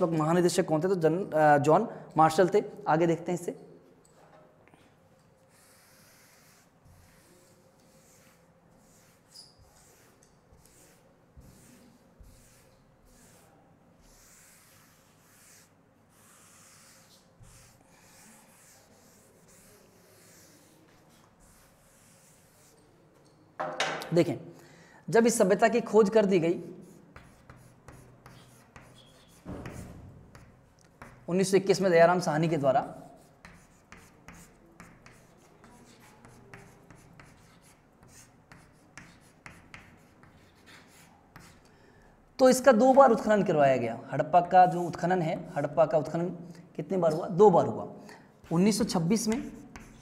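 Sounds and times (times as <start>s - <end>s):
duster rubbing on chalkboard: 5.5s - 22.8s, 26.1s - 31.3s, 33.0s - 41.6s, 49.2s - 50.0s.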